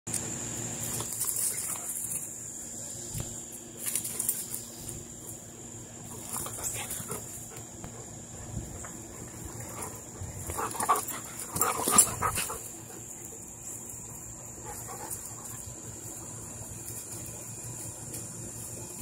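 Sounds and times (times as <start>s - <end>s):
dogs yipping and barking: 6.1s - 13.4s.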